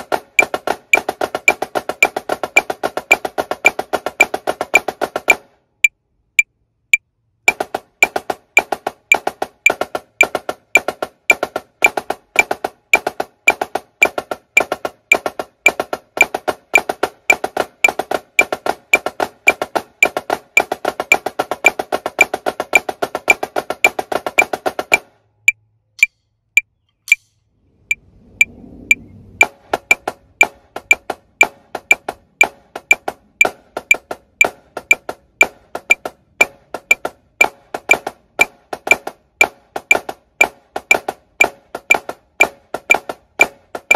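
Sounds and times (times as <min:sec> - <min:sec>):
snare drum playing: 0:00.0 - 0:05.5, 0:07.5 - 0:25.1, 0:29.4 - 0:43.9
metronome clicking: 0:06.9 - 0:26.2, 0:29.4 - 0:43.9.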